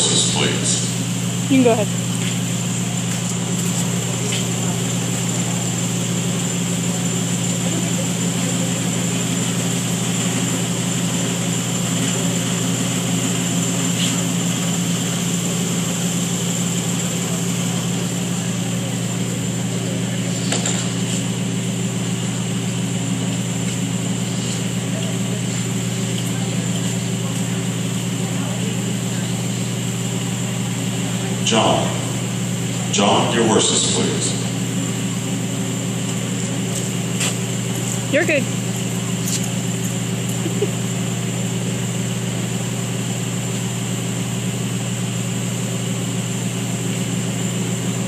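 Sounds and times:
ventilation fans humming: 0:00.0 - 0:48.0.

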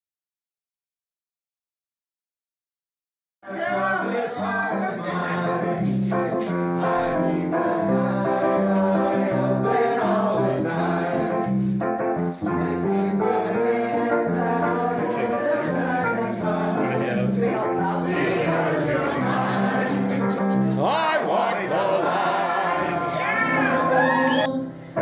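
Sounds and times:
group singing into microphones: 0:03.4 - 0:25.0.

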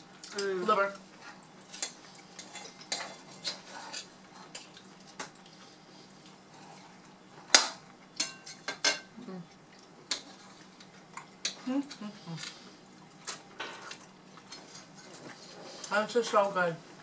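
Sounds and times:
cutlery clinking on plates: 0:07.5 - 0:09.1.

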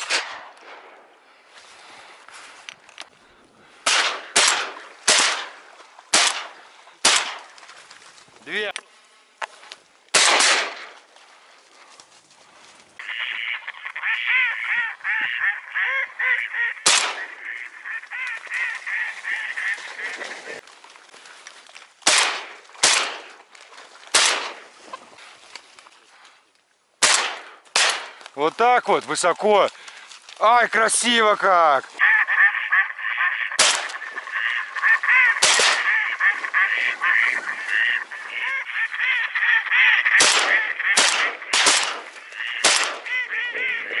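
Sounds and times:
shotgun shot: 0:03.8 - 0:07.5, 0:10.1 - 0:10.9, 0:16.8 - 0:17.3, 0:22.0 - 0:23.3, 0:24.1 - 0:24.6, 0:27.0 - 0:28.2, 0:33.6 - 0:33.9, 0:35.4 - 0:35.9, 0:40.2 - 0:43.1
geese calling: 0:13.0 - 0:20.6, 0:29.7 - 0:44.0.

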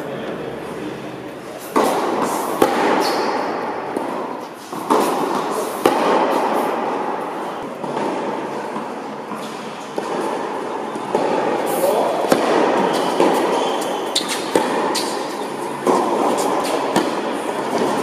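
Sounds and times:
racket hitting tennis ball: 0:01.5 - 0:18.0
ball bouncing: 0:01.7 - 0:06.9, 0:07.6 - 0:10.4, 0:12.2 - 0:18.0
shoe squeaks: 0:03.0 - 0:03.3, 0:09.3 - 0:10.0, 0:12.8 - 0:15.7.

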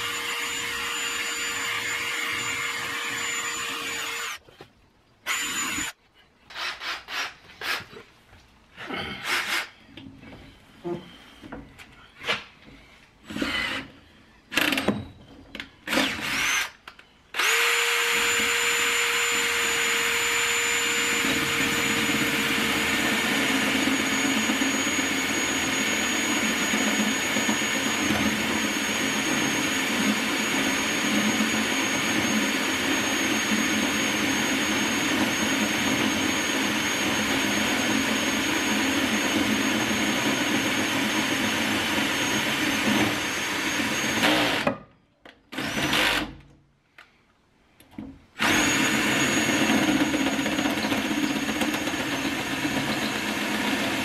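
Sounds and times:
cordless drill boring into steel: 0:00.0 - 0:04.4, 0:05.3 - 0:07.8, 0:15.9 - 0:44.7, 0:45.6 - 0:46.3, 0:48.4 - 0:54.0.

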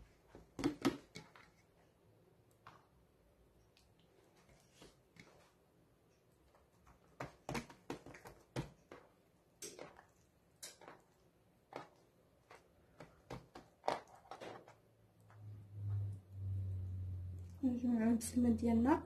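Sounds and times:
dough tapped and pressed on tray: 0:07.1 - 0:10.0.

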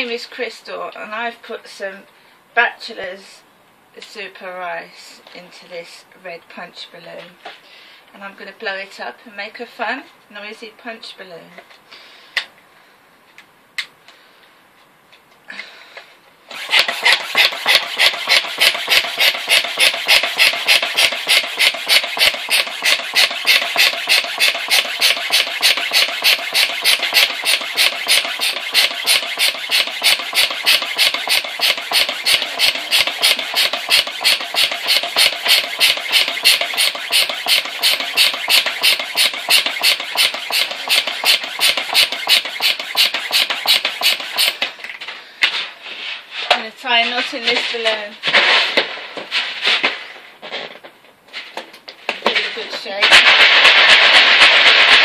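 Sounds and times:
hand pump air puffs: 0:16.5 - 0:44.8.

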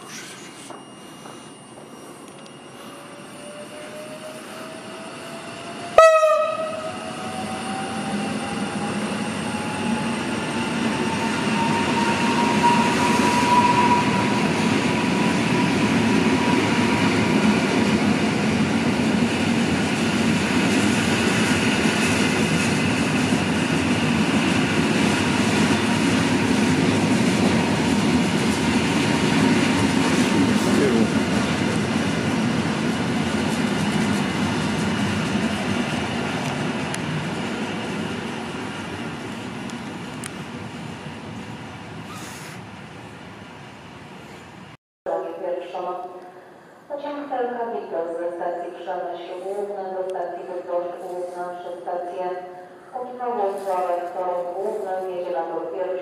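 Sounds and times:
electric train drive whine: 0:00.0 - 0:42.0
wheels rumbling on rails: 0:03.0 - 0:44.7
train horn blast: 0:06.0 - 0:07.2.

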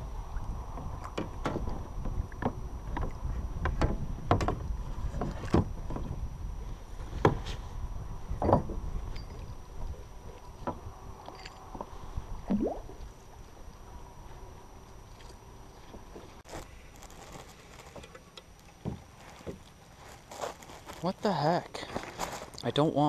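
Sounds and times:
wind: 0:00.0 - 0:23.0
water noise: 0:12.4 - 0:13.8.

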